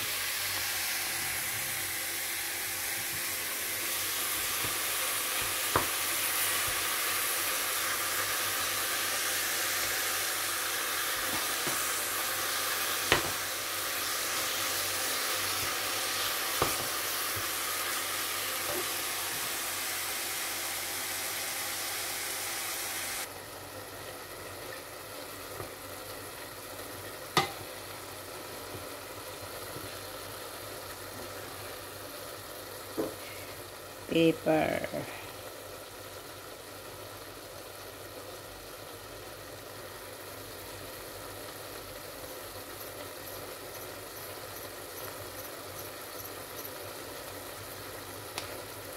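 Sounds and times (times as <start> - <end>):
meat sizzling in a pot: 0.0 - 48.9
wooden spatula knocking on pot: 5.4 - 6.0, 27.4 - 27.6.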